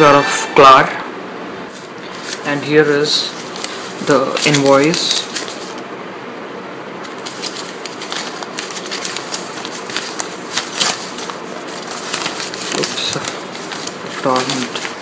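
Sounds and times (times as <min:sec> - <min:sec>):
paper rustling and crackling: 0:01.7 - 0:02.6, 0:03.2 - 0:05.8, 0:07.0 - 0:15.0.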